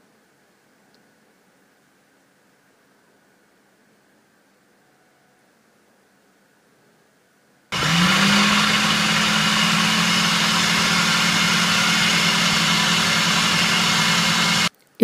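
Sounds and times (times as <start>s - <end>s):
food processor motor running: 7.8s - 14.7s.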